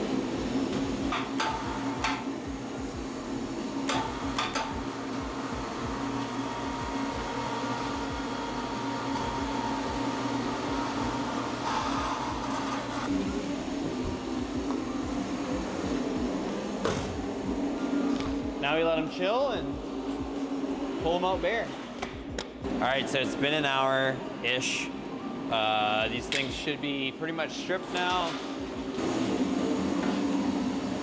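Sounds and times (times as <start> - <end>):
machine hum: 0.0 - 31.0.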